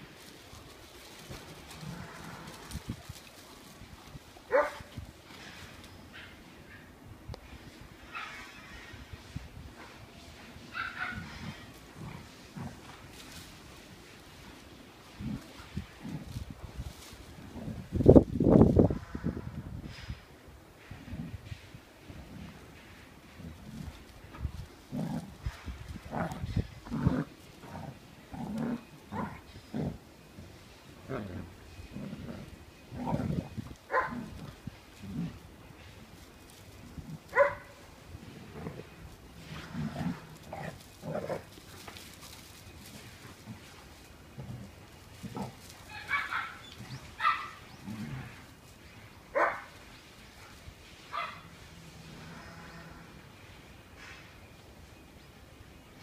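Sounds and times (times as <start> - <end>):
dog barking high-pitched: 4.5 - 4.8, 47.2 - 47.5
dogs growling: 11.1 - 13.2, 24.8 - 30.1, 31.0 - 35.5, 38.1 - 45.9, 46.6 - 48.6.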